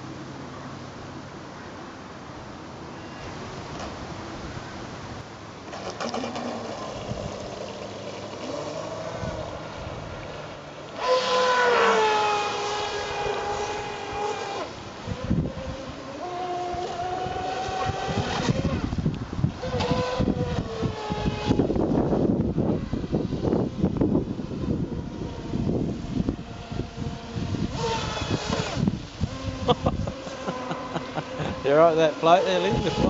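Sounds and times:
electric motor whining: 6.0s - 9.7s, 11.0s - 33.0s.

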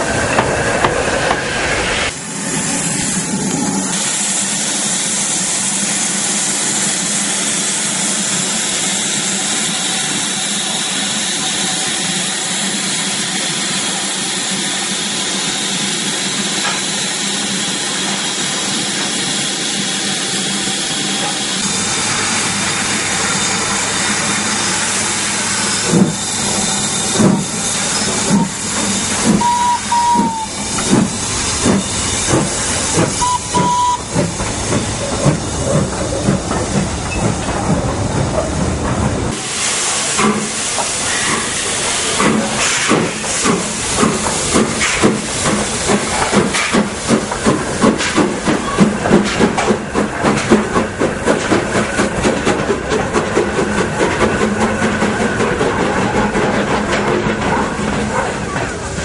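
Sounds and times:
steam hissing: 0.0s - 59.0s
steam locomotive exhaust chuffs: 0.0s - 59.0s
brief high tones: 29.4s - 30.5s.

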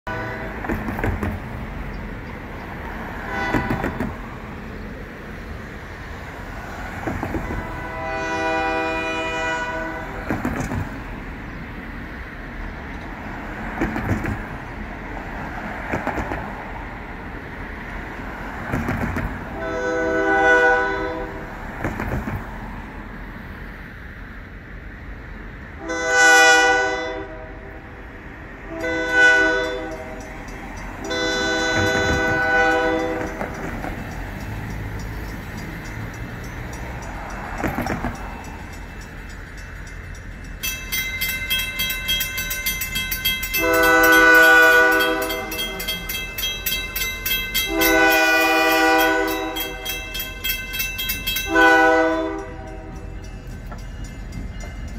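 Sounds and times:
train air horn blasts: 0.0s - 0.7s, 3.0s - 4.2s, 7.3s - 10.3s, 19.5s - 21.6s, 25.8s - 28.0s, 28.6s - 30.3s, 31.0s - 33.5s, 43.5s - 46.1s, 47.6s - 50.2s, 51.4s - 53.2s
road traffic passing: 0.0s - 54.9s
train rumble: 0.0s - 54.9s.

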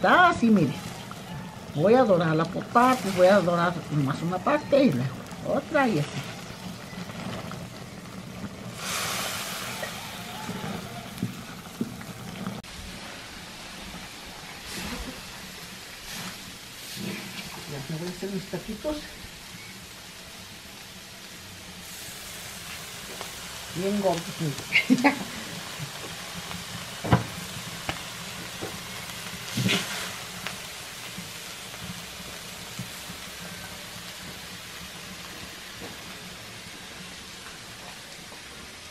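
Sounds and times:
meat sizzling on griddle: 0.0s - 38.9s
metal spatula scraping griddle: 29.5s - 30.2s.

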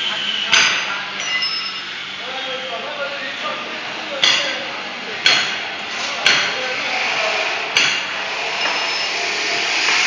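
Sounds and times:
sharp metallic knocks: 4.2s - 4.6s, 5.2s - 6.6s, 7.7s - 9.1s.

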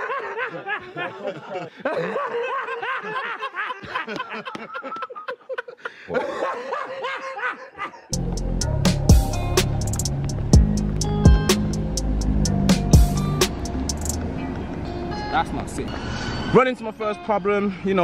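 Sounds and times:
man cackling with laughter: 0.0s - 8.1s
people chuckling: 0.0s - 8.2s
music with a beat: 8.2s - 14.2s.

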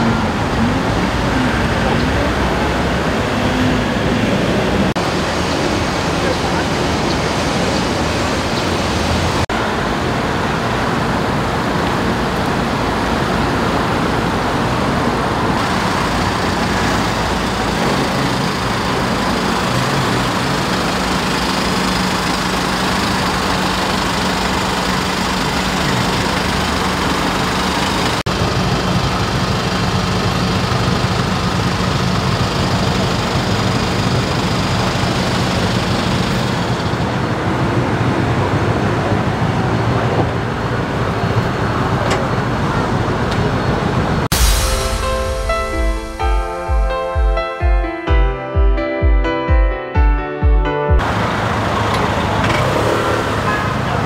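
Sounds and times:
roadside traffic noise: 0.0s - 48.0s, 50.9s - 54.0s
low hum: 44.3s - 47.5s.

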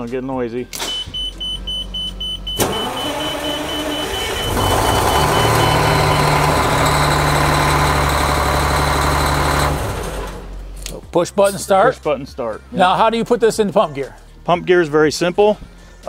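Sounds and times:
diesel engine starting and running: 1.2s - 10.9s.

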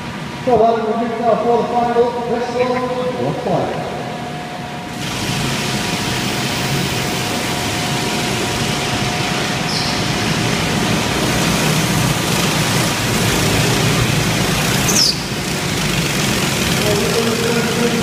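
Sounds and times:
go-kart engines droning: 0.0s - 18.0s
high squeal: 9.5s - 10.4s.

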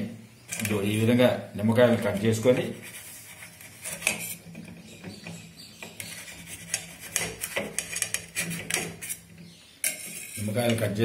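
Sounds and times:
knife cutting on metal plate: 5.9s - 10.5s.

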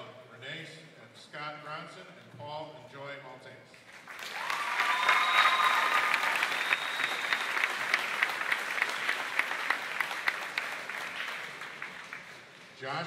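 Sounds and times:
audience applauding: 3.9s - 12.7s
high cheer: 4.2s - 11.0s.

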